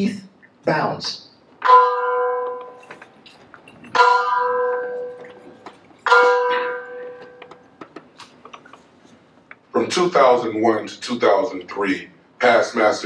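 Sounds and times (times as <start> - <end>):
bell tolling: 1.6 - 3.1, 3.8 - 7.7.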